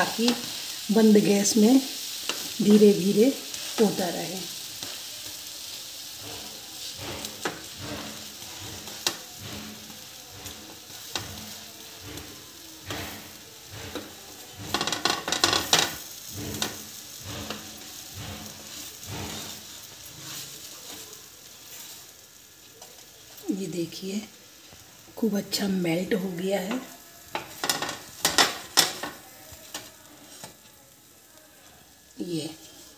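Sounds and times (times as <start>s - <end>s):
wooden spatula scraping pan: 0.0s - 22.2s, 25.5s - 30.7s
butter sizzling in frying pan: 0.0s - 32.9s.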